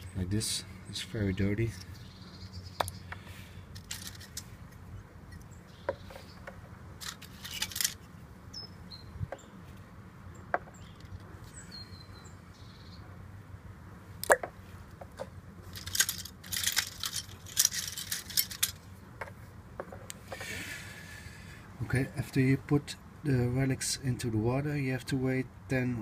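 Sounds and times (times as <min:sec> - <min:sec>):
small metal pieces clinking: 0:03.8 - 0:04.4, 0:07.0 - 0:08.1, 0:15.7 - 0:18.8.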